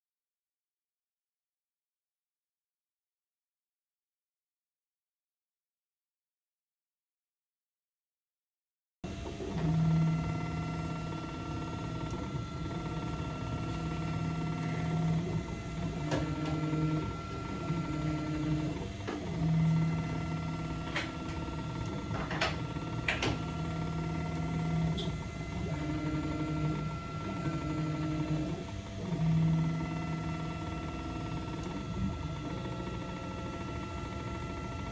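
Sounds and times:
stepper motors whining: 0:09.1 - 0:34.9.

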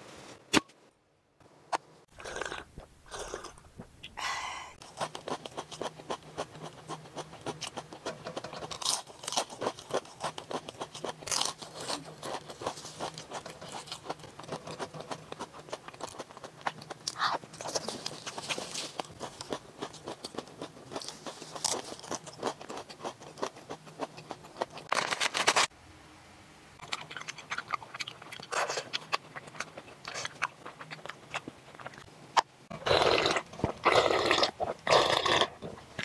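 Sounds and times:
crunching fried chicken: 0:04.8 - 0:25.7, 0:26.8 - 0:35.8.

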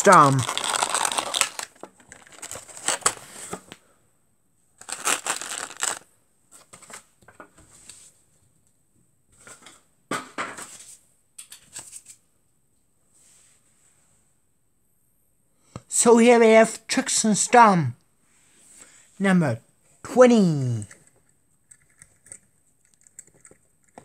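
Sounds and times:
plastic packaging crinkling: 0:00.0 - 0:03.2, 0:04.8 - 0:06.0.

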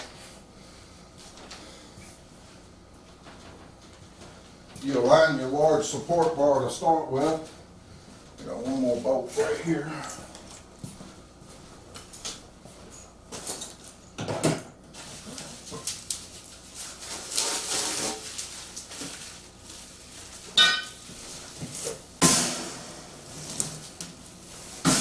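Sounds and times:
plastic bag rustling: 0:14.9 - 0:22.1.

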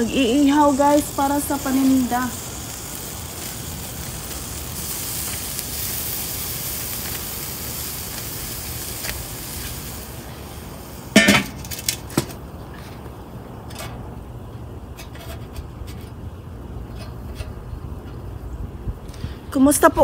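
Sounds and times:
meat sizzling on grill: 0:00.0 - 0:12.2
metal lid clanking: 0:11.1 - 0:12.4.

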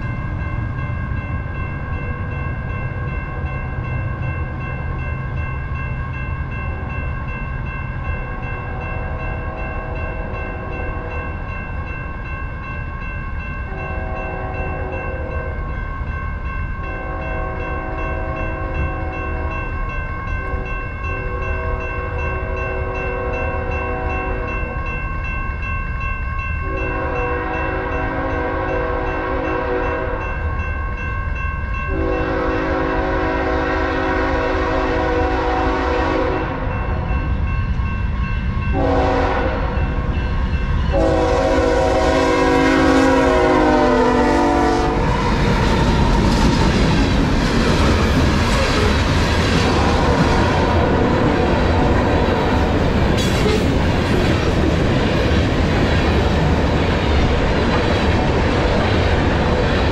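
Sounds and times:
crossing warning bell ringing: 0:00.0 - 0:59.9
locomotive engine and wheels rumbling: 0:00.0 - 0:59.9
locomotive horn blasts: 0:13.7 - 0:15.4, 0:17.0 - 0:19.5, 0:26.6 - 0:30.2, 0:31.9 - 0:37.0, 0:38.7 - 0:39.8, 0:40.9 - 0:45.1.

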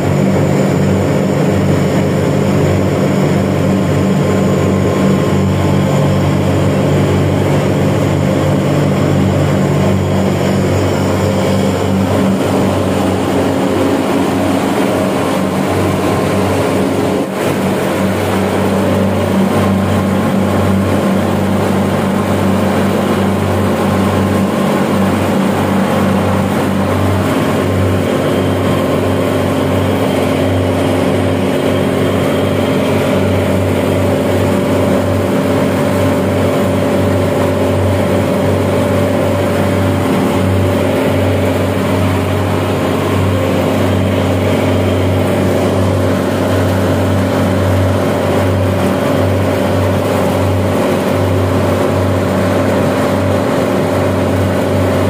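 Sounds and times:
chiller machinery droning: 0:00.0 - 0:55.0
higher machine hum: 0:00.0 - 0:55.0.

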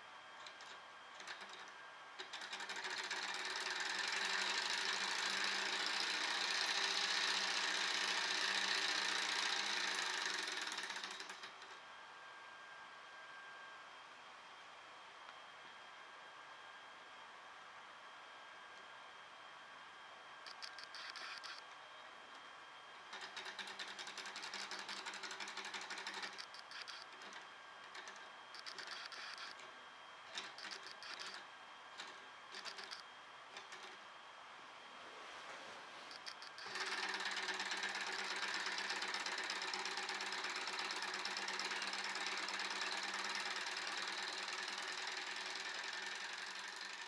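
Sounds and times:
small engine whirring and clattering: 0:00.0 - 0:12.0, 0:20.4 - 0:34.1, 0:36.1 - 0:47.0
faint hum: 0:11.1 - 0:36.7.

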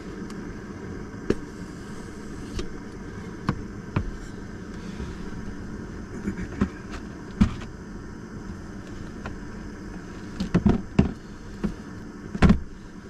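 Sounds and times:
steady low rumble: 0:00.0 - 0:13.0
knocks and clunks of gear: 0:10.3 - 0:12.8.

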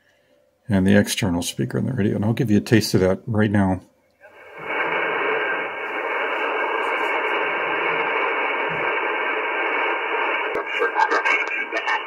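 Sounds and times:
radio static hiss: 0:04.2 - 0:12.0.

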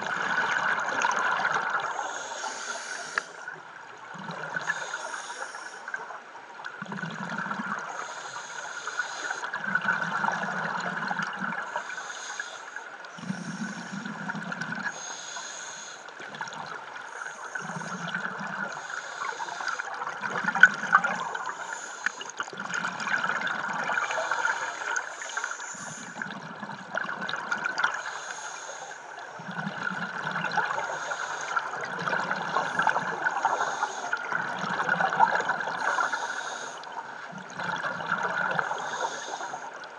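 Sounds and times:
constant hiss: 0:00.0 - 0:39.9
diver breathing through regulator: 0:01.9 - 0:03.5, 0:04.3 - 0:06.0, 0:07.4 - 0:10.4, 0:11.7 - 0:16.1, 0:17.0 - 0:26.6, 0:27.9 - 0:39.9
exhale bubbling: 0:06.8 - 0:08.1, 0:08.8 - 0:11.8, 0:13.2 - 0:15.6, 0:16.2 - 0:39.9.

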